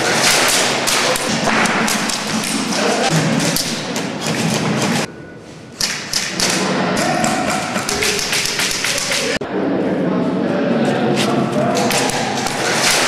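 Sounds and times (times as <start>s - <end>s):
pellets knocking on walls: 0.1s - 5.1s, 5.8s - 9.4s.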